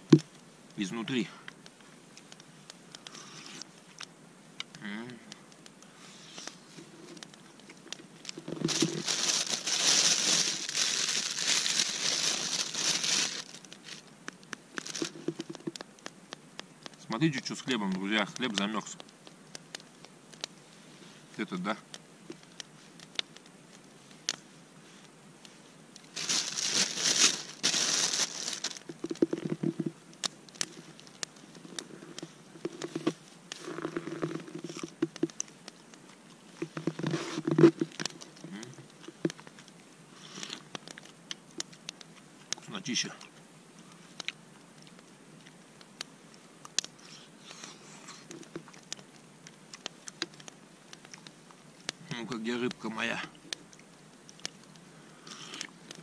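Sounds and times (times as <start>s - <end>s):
low crunching: 4.7s - 42.0s
soft rustling: 5.4s - 21.5s, 22.2s - 42.1s
plastic bag crinkling: 8.4s - 14.0s, 14.8s - 15.7s, 26.1s - 29.9s.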